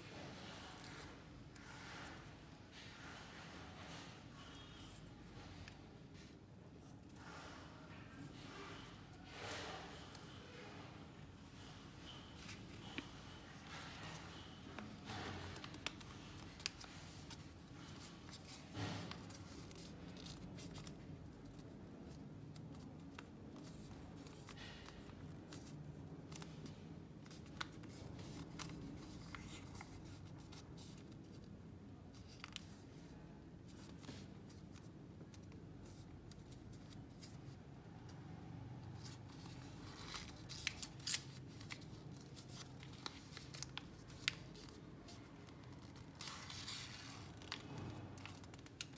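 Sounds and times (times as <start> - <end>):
paper rustling and crinkling: 0.0 - 38.2, 38.8 - 48.9.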